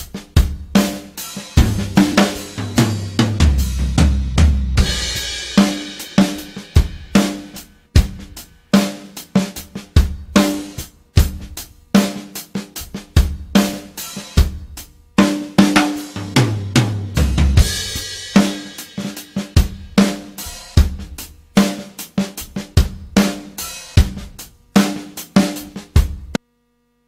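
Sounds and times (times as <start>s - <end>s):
drum kit beat: 0.0s - 26.4s
bass line: 16.4s - 18.0s.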